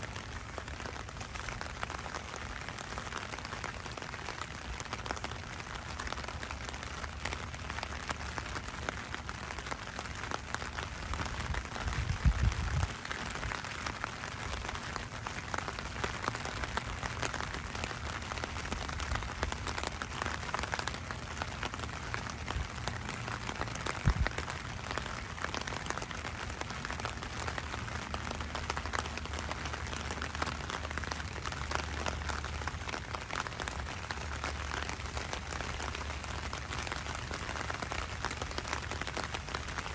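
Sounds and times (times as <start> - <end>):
rain on wet street: 0.0 - 39.9.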